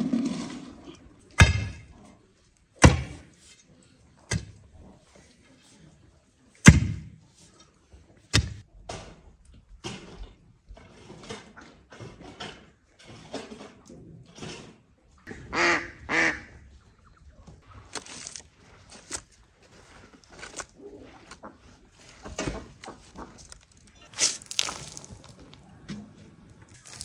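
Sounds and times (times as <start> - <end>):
bucket scraping and knocking: 0.0 - 1.9, 26.7 - 27.0
waterfowl calling: 15.5 - 17.2
loose soil thrown: 22.0 - 25.6, 26.6 - 27.0.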